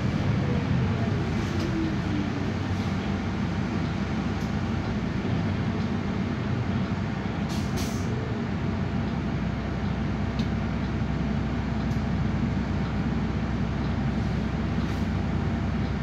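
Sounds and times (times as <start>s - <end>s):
tyres on wet road: 0.0s - 12.0s
bus engine and road noise: 0.0s - 16.0s.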